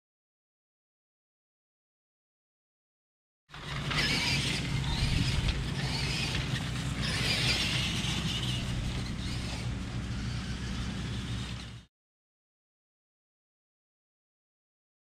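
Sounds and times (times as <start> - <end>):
toy truck electric motors whirring: 3.5 - 11.9.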